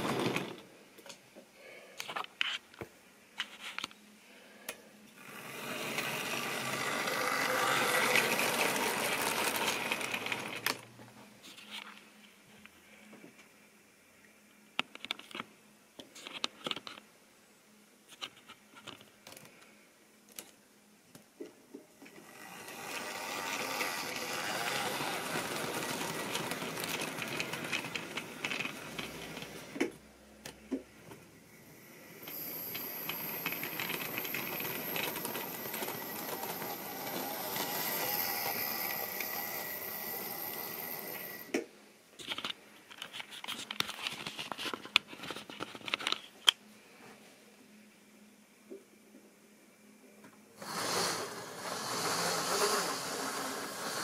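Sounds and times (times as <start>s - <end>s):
model train rolling rattle: 5.2s - 10.8s, 22.2s - 29.7s, 32.2s - 41.5s, 50.6s - 54.0s
model train wheels clicking: 5.2s - 10.8s, 22.1s - 29.9s, 32.2s - 41.6s, 50.6s - 54.0s.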